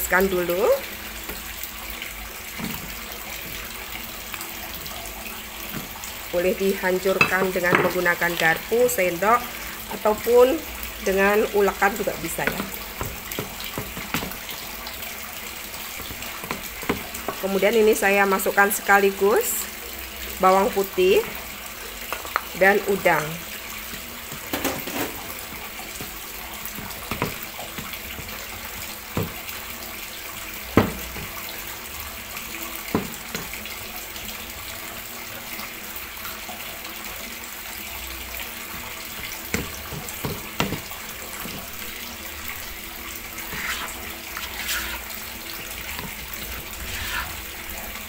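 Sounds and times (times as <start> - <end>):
pestle knocking plastic bowl: 39.5 - 41.7
spatula scraping through mash: 43.3 - 47.8.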